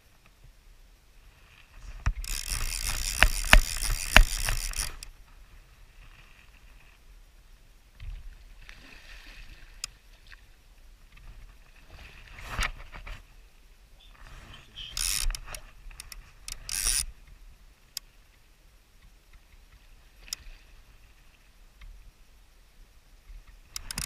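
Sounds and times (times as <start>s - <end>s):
fishing reel ratchet clicking: 2.2s - 5.1s, 15.0s - 17.1s, 23.7s - 24.0s.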